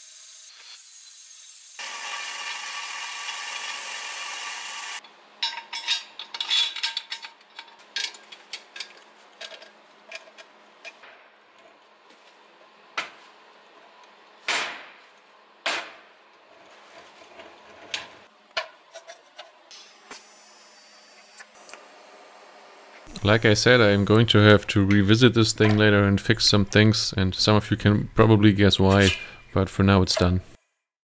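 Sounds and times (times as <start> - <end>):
steady machine noise: 1.8 - 5.0
metal parts clinking on workbench: 5.4 - 11.0.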